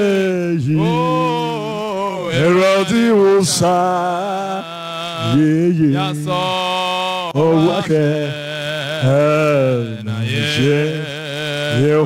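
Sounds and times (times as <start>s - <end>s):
man chanting into a microphone: 0.0s - 12.0s.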